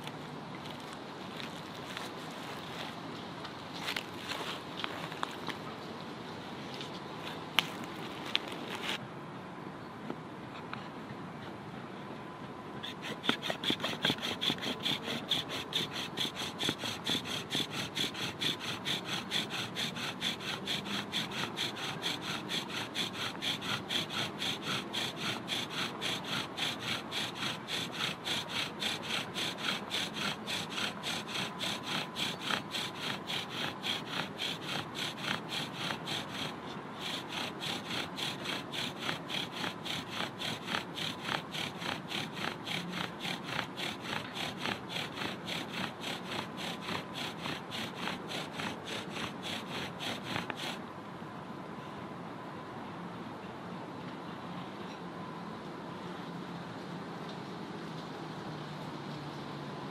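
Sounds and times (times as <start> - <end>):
bow drill rasping squeak: 12.8 - 50.7.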